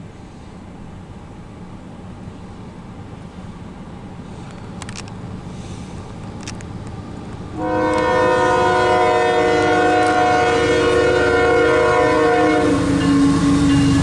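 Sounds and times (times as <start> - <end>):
locomotive air horn blast: 7.6 - 13.7.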